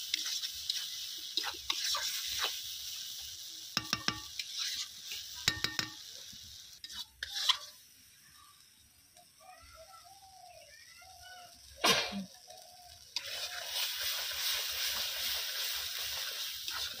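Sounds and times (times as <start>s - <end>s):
spatula scraping a pan: 0.0s - 3.2s, 3.8s - 6.0s, 6.7s - 7.9s, 13.2s - 17.0s
curry sizzling in a pan: 0.0s - 17.0s
spatula clanging on pan: 3.8s - 4.5s, 5.4s - 6.1s.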